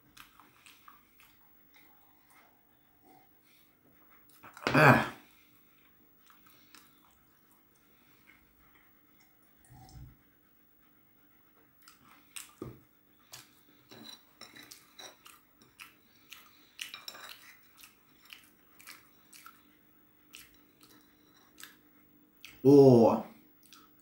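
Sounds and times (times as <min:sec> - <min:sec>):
peanuts being chewed: 0:00.0 - 0:02.4, 0:11.8 - 0:22.6, 0:23.6 - 0:24.0.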